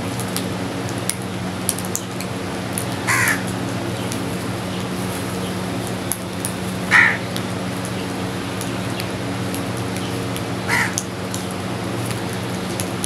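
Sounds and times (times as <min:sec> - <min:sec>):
low hum and hiss: 0:00.0 - 0:13.0
crow cawing: 0:03.0 - 0:03.5, 0:06.9 - 0:07.3, 0:10.7 - 0:11.1.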